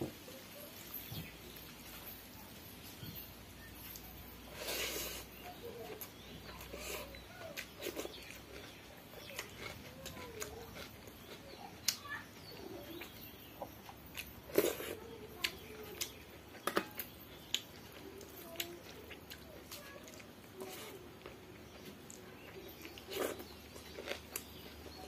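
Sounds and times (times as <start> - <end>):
fingers squishing wet food: 5.3 - 25.0.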